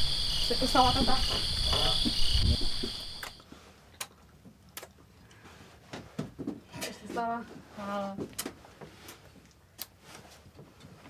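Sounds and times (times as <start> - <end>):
night insects chirring: 0.0 - 3.4.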